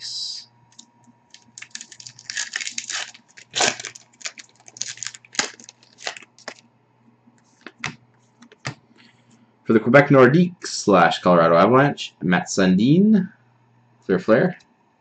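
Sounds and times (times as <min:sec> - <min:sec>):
foil wrapper tearing and crinkling: 0:01.3 - 0:06.6.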